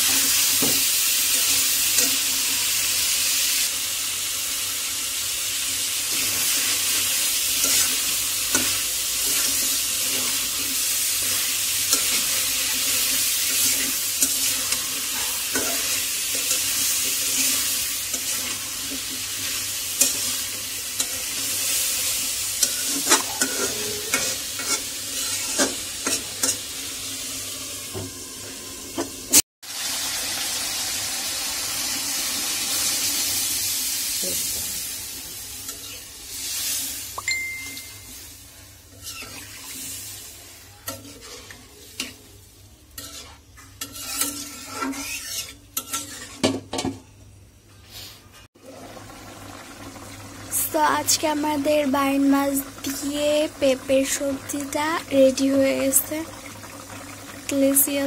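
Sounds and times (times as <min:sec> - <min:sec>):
food sizzling: 0:00.0 - 0:58.0
spatula scraping a pan: 0:06.1 - 0:26.7, 0:38.6 - 0:42.3, 0:42.9 - 0:46.7
water pouring into a pan: 0:48.6 - 0:51.2, 0:52.6 - 0:58.0.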